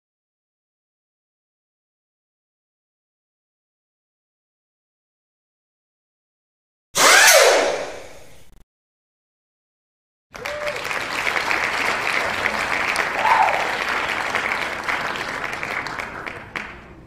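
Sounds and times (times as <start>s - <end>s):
crowd clapping and cheering: 10.3s - 17.0s.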